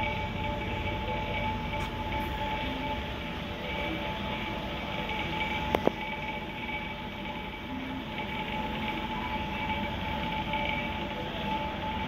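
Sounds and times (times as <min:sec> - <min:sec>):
aquarium filters and pumps humming: 0:00.0 - 0:12.0
faint whine: 0:00.0 - 0:12.0.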